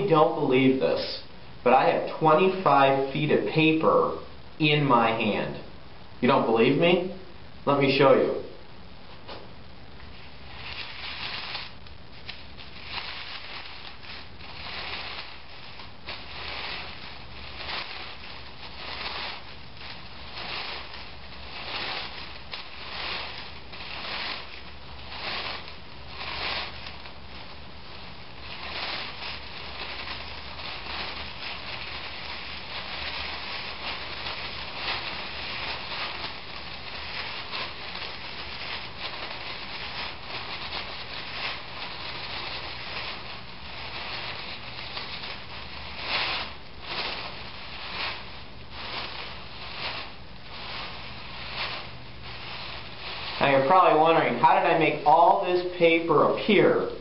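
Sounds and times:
paper crinkling: 10.0 - 57.0
paper streamer swishing: 10.2 - 55.7.

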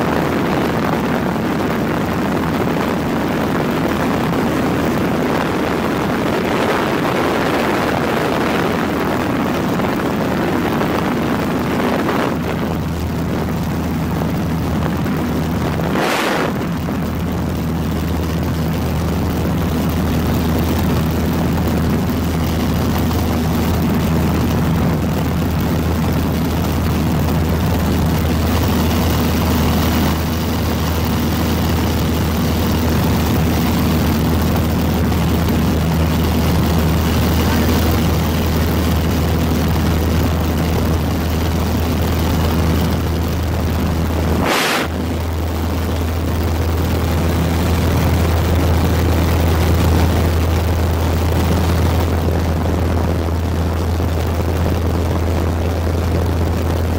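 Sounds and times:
aircraft engine drone: 0.0 - 56.9
broad rushing noise: 0.0 - 56.9
brief whoosh: 44.4 - 45.0.

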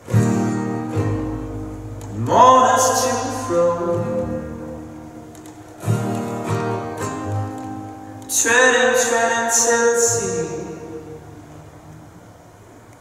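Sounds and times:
upright bass: 0.0 - 7.6
acoustic guitar strumming: 0.0 - 12.4.

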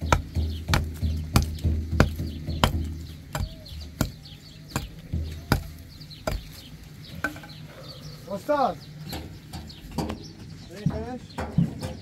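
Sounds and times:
hand tool striking wood: 0.0 - 7.6.

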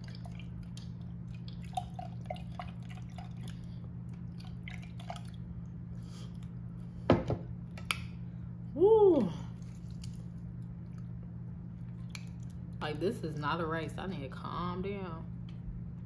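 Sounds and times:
sauce dripping: 0.0 - 5.8
steady low hum: 0.0 - 16.0.

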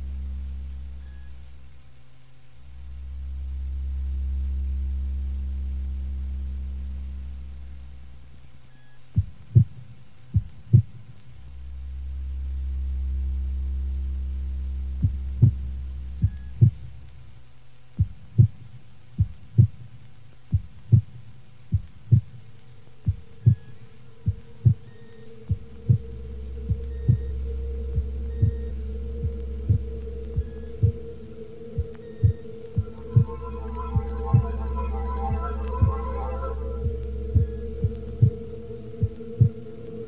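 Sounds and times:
deep hum: 0.0 - 1.8, 2.5 - 8.4, 11.4 - 17.4, 21.8 - 40.0
heartbeat-like double thumps: 9.2 - 11.1, 14.7 - 17.0, 18.0 - 19.9, 20.5 - 40.0
high steady tone: 22.8 - 40.0.

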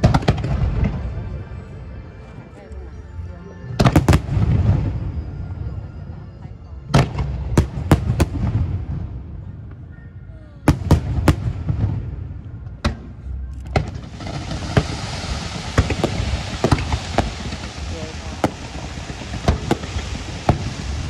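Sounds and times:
fireworks bursting with sharp bangs: 0.0 - 1.2, 3.8 - 5.1, 6.9 - 9.9, 10.6 - 21.0
low rolling rumble: 13.7 - 21.0
steady hiss: 14.0 - 21.0.

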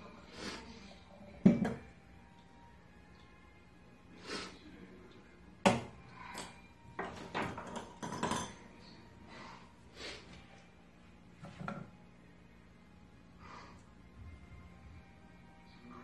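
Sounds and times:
ceramic cup knocks and clinks: 1.4 - 1.9, 7.0 - 8.6.

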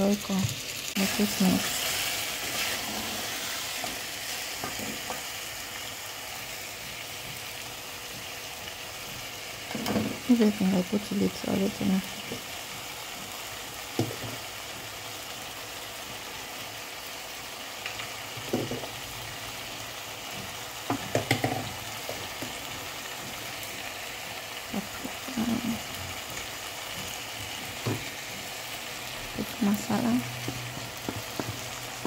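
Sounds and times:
pot of beans sizzling: 0.0 - 32.0
spice shaker taps: 30.4 - 32.0.

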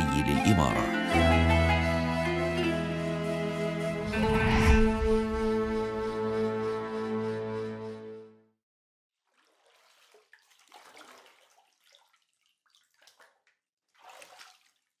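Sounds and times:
water splashing and trickling: 9.2 - 15.0.

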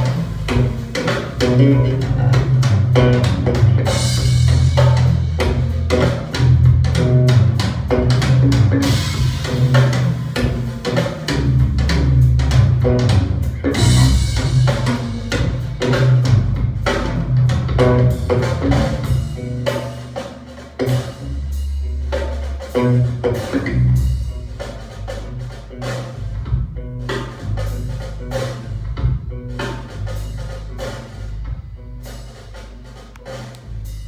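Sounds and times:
recorded music with drums and bass: 0.0 - 34.0.

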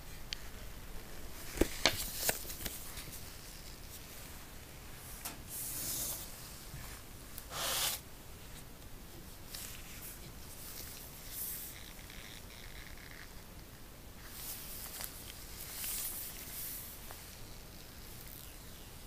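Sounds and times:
paper leaflet crinkling: 1.4 - 4.1.

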